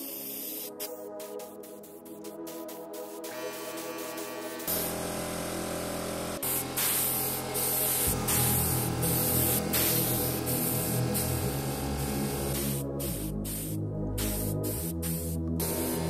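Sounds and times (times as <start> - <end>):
spray hissing: 0.0 - 0.8, 6.4 - 16.0
electronic music: 0.0 - 16.0.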